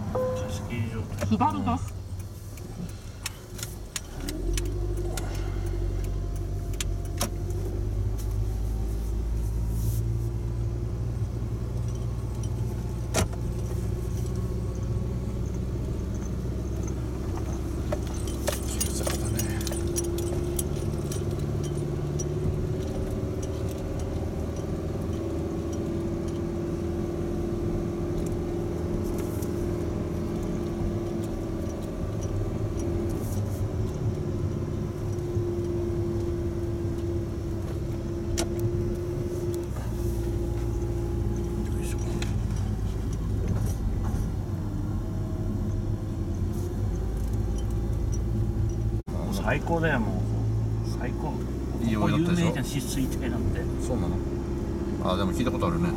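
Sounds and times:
car engine and road hum: 0:00.0 - 0:55.9
sharp clicks and rattles: 0:11.7 - 0:26.5.

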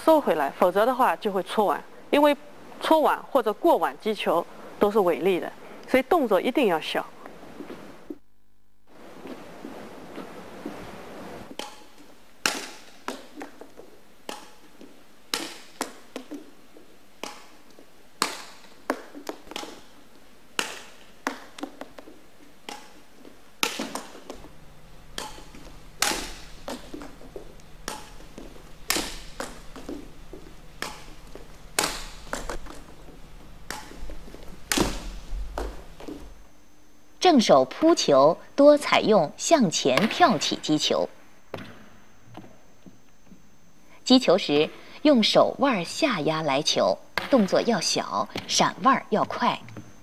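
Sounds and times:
racket hitting shuttlecock: 0:11.5 - 0:16.5, 0:17.2 - 0:19.9, 0:20.6 - 0:36.3.

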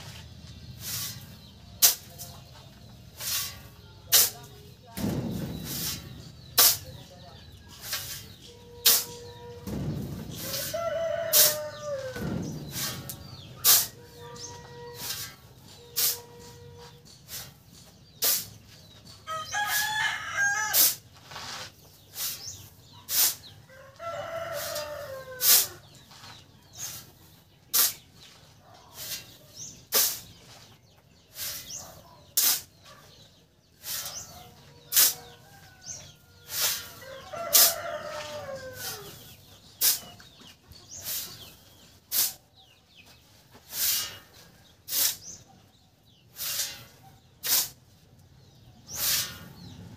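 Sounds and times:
shovel scraping into sand: 0:00.0 - 0:02.4, 0:03.1 - 0:09.5, 0:10.3 - 0:18.7, 0:19.7 - 0:23.5, 0:24.3 - 0:28.4, 0:29.0 - 0:33.0, 0:33.8 - 0:40.2, 0:40.9 - 0:41.5, 0:42.1 - 0:42.4, 0:43.5 - 0:45.4, 0:46.3 - 0:47.8, 0:48.9 - 0:49.8
rooster crowing: 0:10.4 - 0:12.3, 0:37.0 - 0:39.1.

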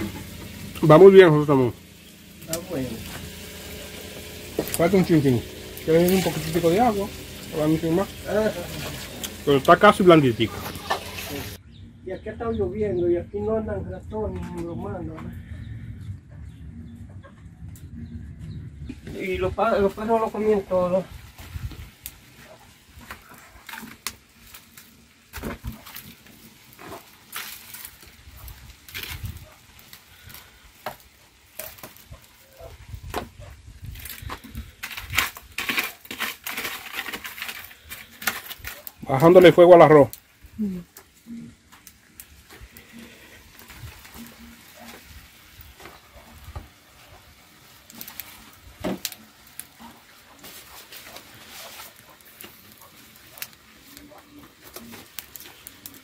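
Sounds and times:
leaf rustling: 0:00.0 - 0:11.6, 0:19.2 - 0:56.0
firewood crackling and popping: 0:00.0 - 0:11.8, 0:17.2 - 0:56.0.

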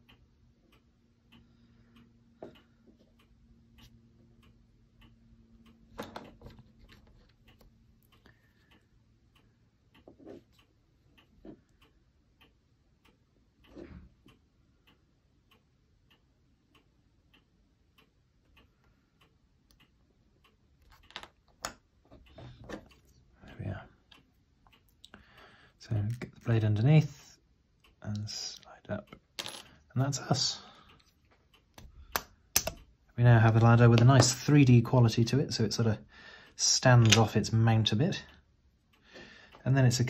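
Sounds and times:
faint steady ticking: 0:00.0 - 0:40.0
soft clicks and knocks: 0:20.8 - 0:23.2.

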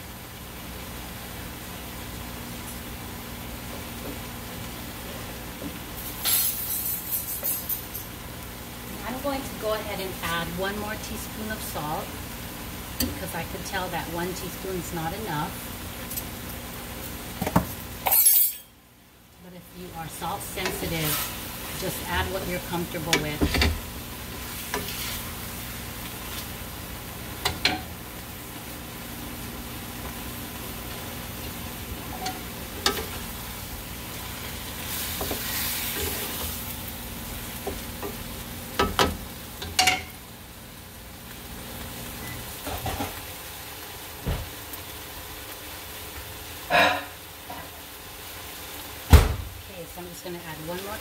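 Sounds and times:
food sizzling in a pan: 0:00.0 - 0:51.0
spatula scraping a pan: 0:24.4 - 0:25.4, 0:34.8 - 0:36.6, 0:46.7 - 0:47.2.

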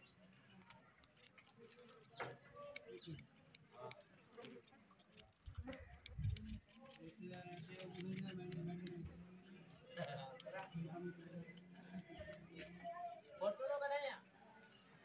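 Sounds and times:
scissors snipping: 0:00.6 - 0:09.0, 0:10.0 - 0:10.9, 0:11.6 - 0:13.3.

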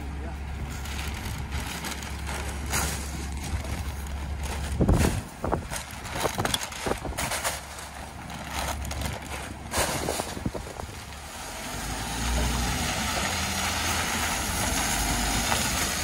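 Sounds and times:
garbage truck idling: 0:00.0 - 0:11.4
bags and can banging: 0:00.8 - 0:11.0.

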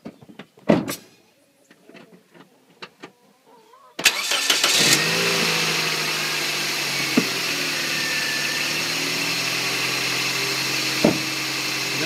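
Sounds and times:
car starter cranking: 0:04.0 - 0:11.9
car engine idling: 0:04.0 - 0:12.0.

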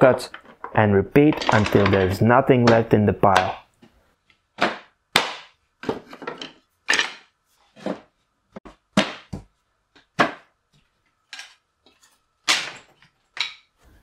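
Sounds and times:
wood pieces clattering into bin: 0:00.4 - 0:02.2, 0:05.8 - 0:08.0.

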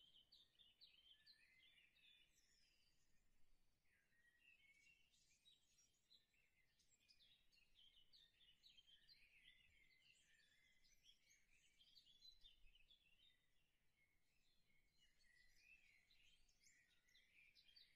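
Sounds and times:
faint high-pitched chirping: 0:14.1 - 0:17.9.

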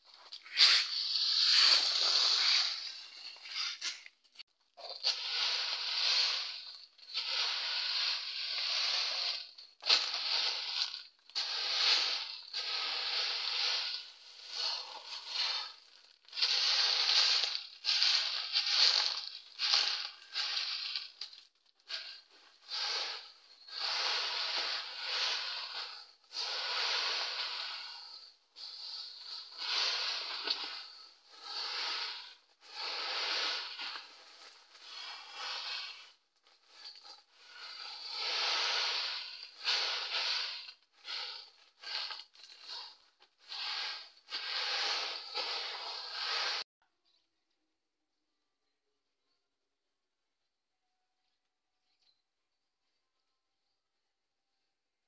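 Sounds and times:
dry pods crunching on a tarp: 0:04.8 - 0:46.6.

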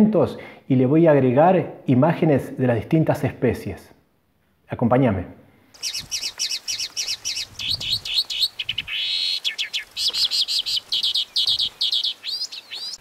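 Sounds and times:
mockingbird singing: 0:05.8 - 0:13.0.

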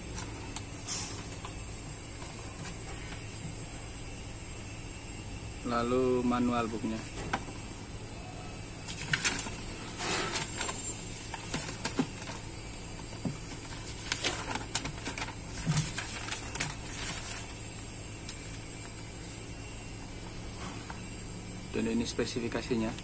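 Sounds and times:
paper pages rustling: 0:00.0 - 0:03.5, 0:08.8 - 0:21.0
low steady hum: 0:00.0 - 0:23.0.

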